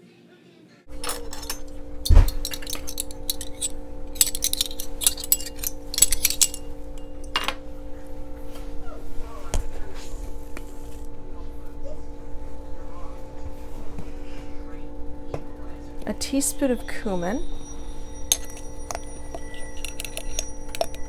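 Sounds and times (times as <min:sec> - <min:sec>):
steady hum: 0:00.9 - 0:21.0
metal spoons jingling: 0:01.0 - 0:07.5, 0:17.0 - 0:21.0.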